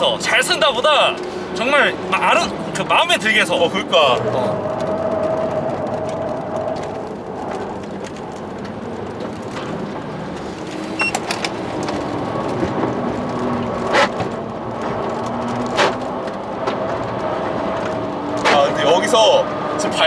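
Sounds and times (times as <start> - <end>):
road and tyre noise: 0.0 - 20.0
short beep: 11.0 - 11.2.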